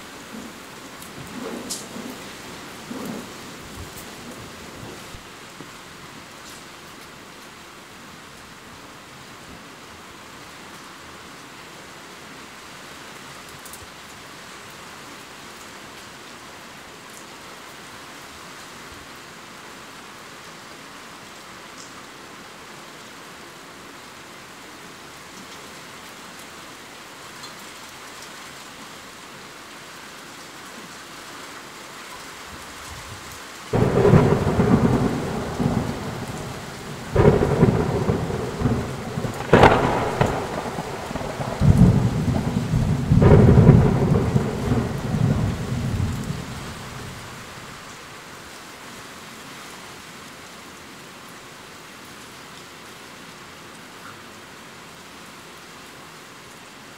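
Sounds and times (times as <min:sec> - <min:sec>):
steady rain hiss: 0:00.0 - 0:56.9
thunder rumbling: 0:33.7 - 0:47.6.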